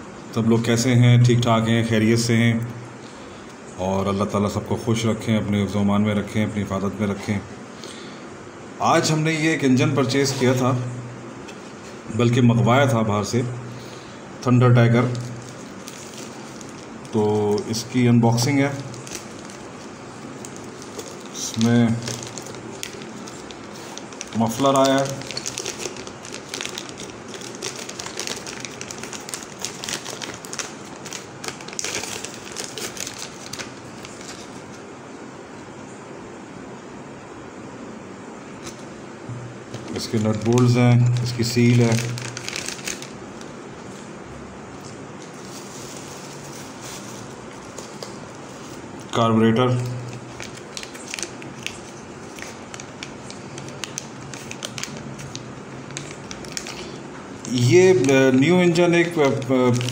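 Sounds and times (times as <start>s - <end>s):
plastic bag crinkling: 14.8s - 34.8s, 39.7s - 44.0s, 44.8s - 59.9s.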